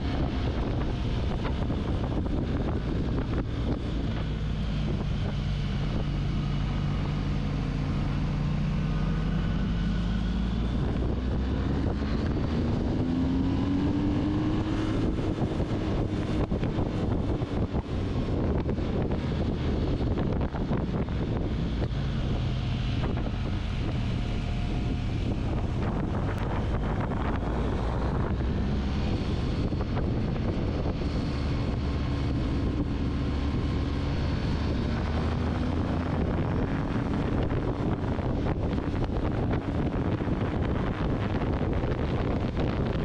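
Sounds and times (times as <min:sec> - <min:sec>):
wind on microphone: 0:00.0 - 0:43.0
motorcycle engine running: 0:10.6 - 0:43.0.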